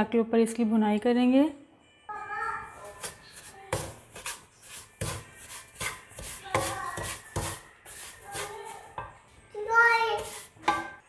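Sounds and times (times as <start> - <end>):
wooden spatula scraping metal pan: 2.8 - 9.0, 10.2 - 11.0.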